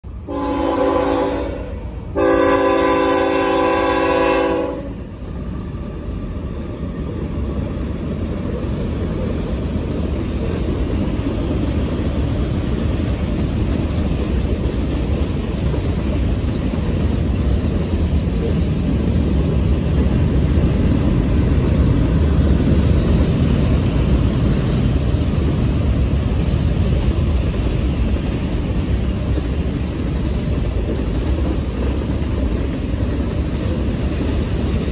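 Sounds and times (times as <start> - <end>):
freight cars rumbling on rails: 0.0 - 34.9
locomotive horn blasts: 0.2 - 5.0.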